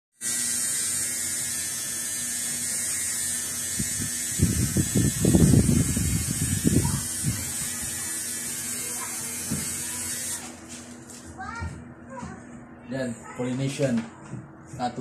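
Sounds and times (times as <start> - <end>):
tattoo machine buzzing: 0.2 - 10.6.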